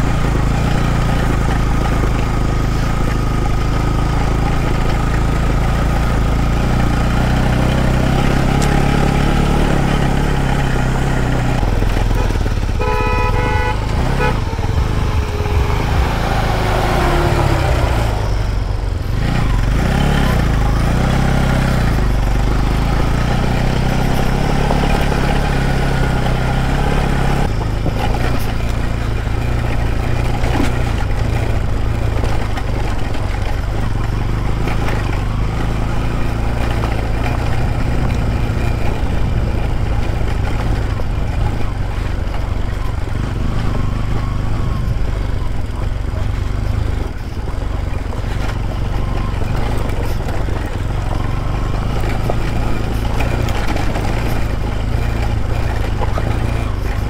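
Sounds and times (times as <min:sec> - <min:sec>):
motorcycle engine running: 0:00.0 - 0:57.0
vehicle horn toot: 0:11.9 - 0:18.4.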